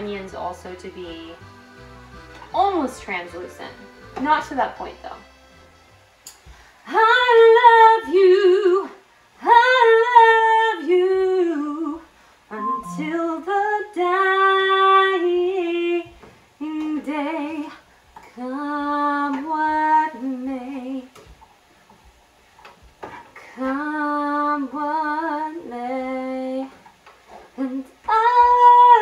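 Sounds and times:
woman singing unaccompanied: 6.9 - 21.2, 23.4 - 26.8, 27.6 - 29.0.

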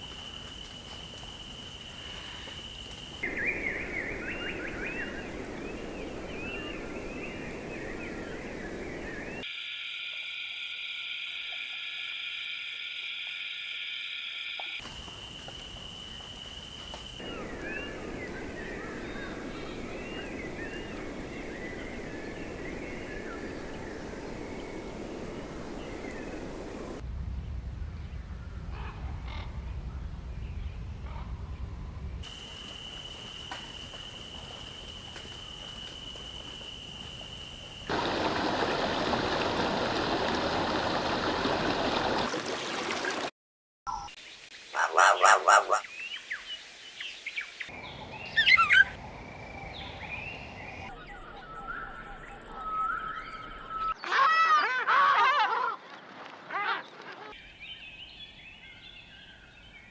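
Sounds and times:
rain-like hiss: 0.0 - 43.3, 44.2 - 51.3
chirping animal calls: 44.8 - 45.9, 47.8 - 49.0.

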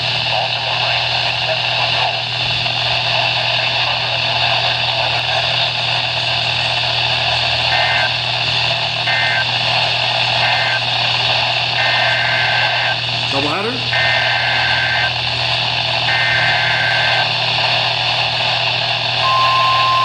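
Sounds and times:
radio static hiss: 0.0 - 20.0
low hum: 14.6 - 20.0
two-pitch data chirps: 19.2 - 20.0.

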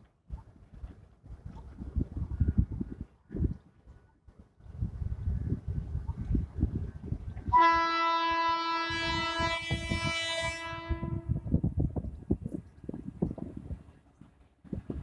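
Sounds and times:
wind buffeting microphone: 0.2 - 15.0
locomotive horn blast: 7.5 - 11.4.

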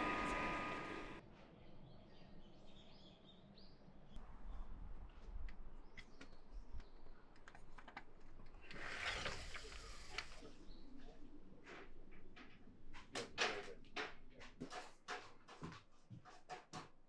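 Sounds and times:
door scraping and rattling: 8.7 - 10.4.

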